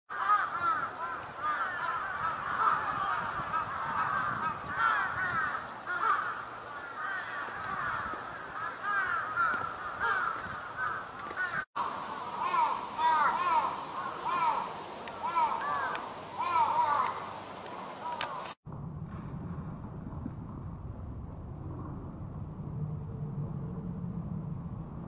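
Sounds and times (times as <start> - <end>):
many birds chattering: 0.1 - 18.6.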